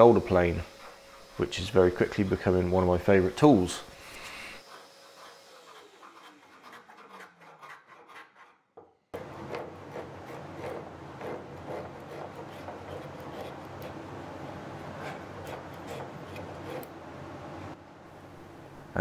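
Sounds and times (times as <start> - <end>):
hand plane shaving wood: 4.6 - 8.6, 9.2 - 14.0, 15.0 - 16.9.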